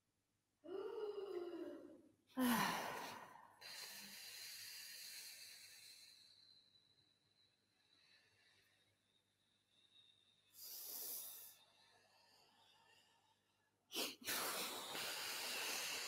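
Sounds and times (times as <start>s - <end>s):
person sighing: 0.7s - 3.4s
long breathy hiss: 3.0s - 6.4s, 10.4s - 12.2s, 14.0s - 16.0s.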